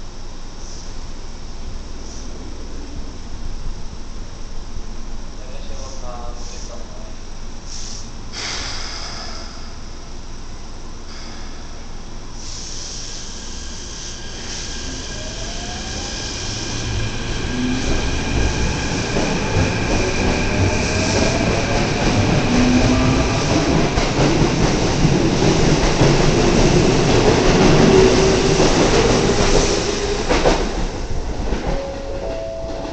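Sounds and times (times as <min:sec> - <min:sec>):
electric train accelerating: 0:10.9 - 0:32.9.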